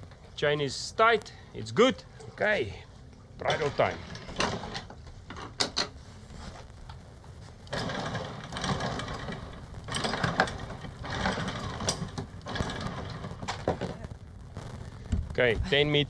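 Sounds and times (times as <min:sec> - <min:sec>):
anchor chain rattling: 0:07.7 - 0:13.6.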